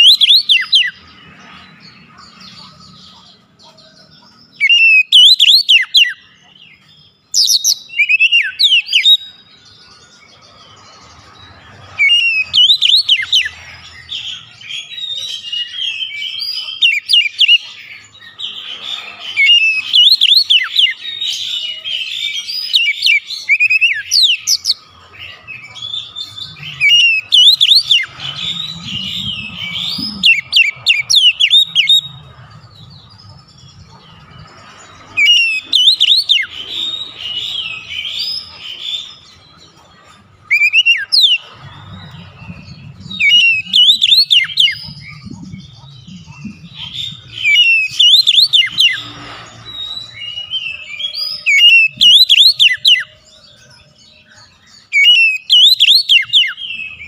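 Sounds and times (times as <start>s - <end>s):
bird singing whistled phrases: 0.0s - 1.0s, 4.6s - 6.2s, 7.4s - 9.4s, 12.0s - 13.5s, 19.4s - 24.8s, 25.8s - 32.1s, 35.2s - 38.5s, 43.1s - 49.1s, 49.8s - 53.1s, 54.9s - 57.0s.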